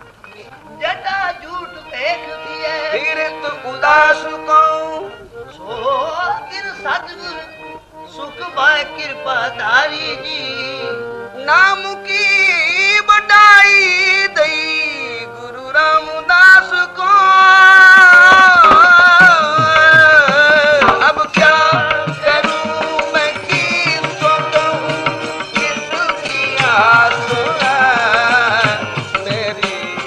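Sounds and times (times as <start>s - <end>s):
sustained harmonium notes: 0.0s - 30.0s
person singing ornamented lines: 14.0s - 30.0s
tabla strokes: 17.8s - 30.0s.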